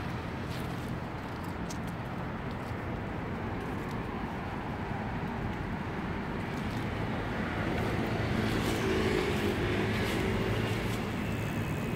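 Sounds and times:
hum of cars on road: 0.0s - 11.9s
passing vehicle engine: 6.7s - 11.9s.

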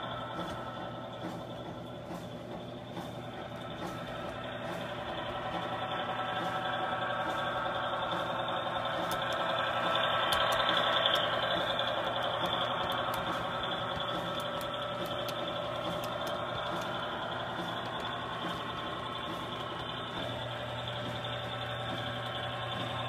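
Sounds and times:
model train humming: 0.0s - 23.0s.

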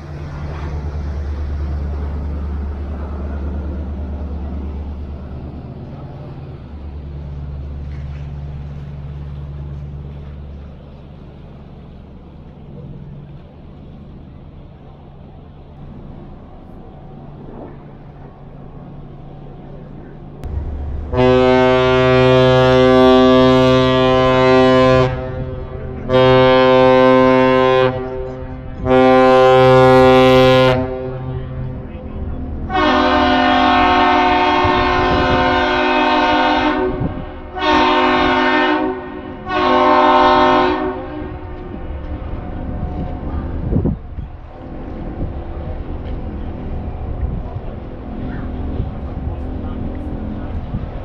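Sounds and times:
boat engines droning: 0.0s - 51.0s
deep air horn blasts: 20.4s - 32.0s, 32.6s - 43.1s.

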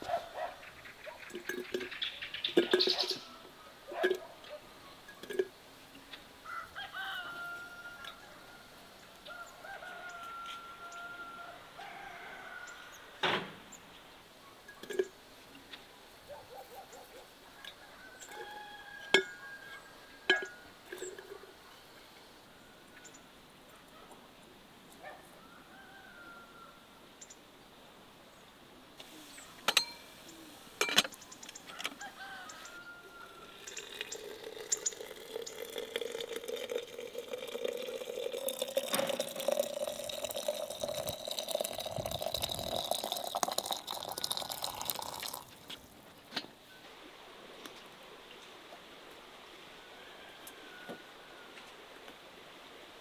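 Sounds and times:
water pouring into glass jar: 1.3s - 3.2s, 5.1s - 5.6s, 33.4s - 46.0s.

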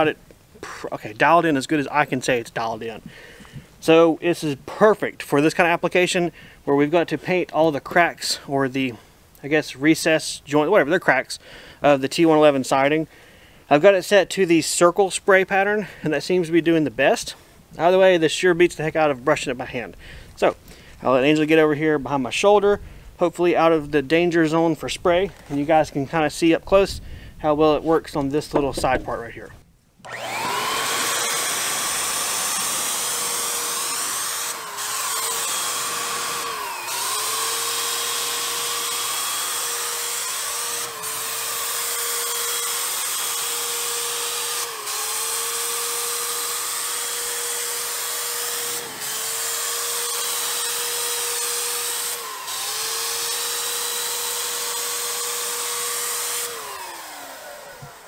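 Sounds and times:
paint sprayer motor whine: 30.0s - 58.0s.

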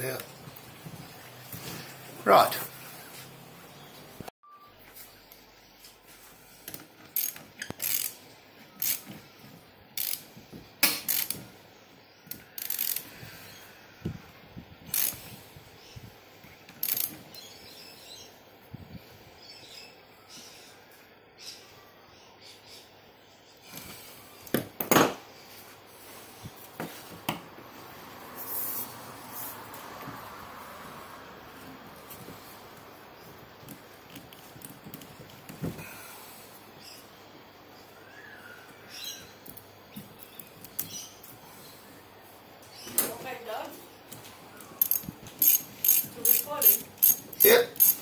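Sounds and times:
ratchet socket wrench clicking: 7.2s - 8.2s, 8.8s - 9.0s, 10.0s - 10.2s, 11.0s - 11.4s, 12.3s - 13.0s, 14.9s - 15.2s, 16.8s - 17.2s, 44.8s - 48.0s.

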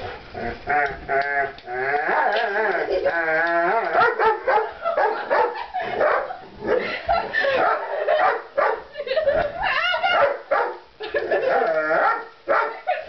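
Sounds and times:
dog whining and howling: 11.3s - 12.3s.

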